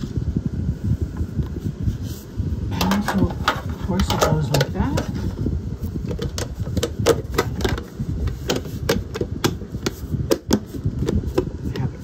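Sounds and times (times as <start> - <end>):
fingers clicking and tapping lid: 6.0 - 11.9.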